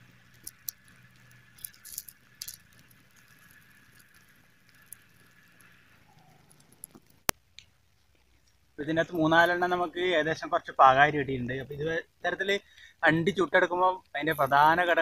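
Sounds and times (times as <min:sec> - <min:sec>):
nuts popping in fire: 0:00.0 - 0:09.8
fire crackling: 0:00.0 - 0:15.0.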